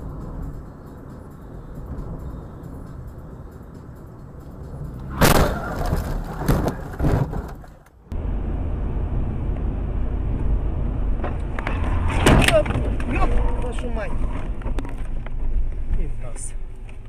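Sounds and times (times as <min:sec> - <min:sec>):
road and engine rumble: 0:00.0 - 0:17.0
car collision bang: 0:05.1 - 0:07.6
knocks and clatter: 0:05.3 - 0:08.0.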